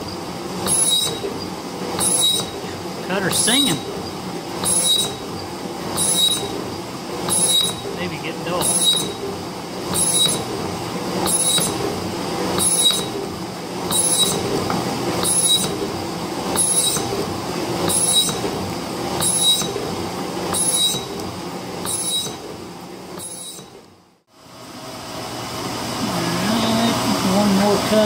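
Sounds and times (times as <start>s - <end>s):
metal cutter squealing: 0.0s - 9.3s, 9.9s - 10.5s, 11.2s - 11.8s, 12.6s - 13.2s, 13.9s - 14.6s, 15.2s - 15.8s, 16.5s - 17.2s, 17.8s - 18.5s, 19.2s - 19.8s, 20.5s - 21.2s, 21.8s - 22.5s, 23.2s - 23.8s
machine running: 0.0s - 28.0s.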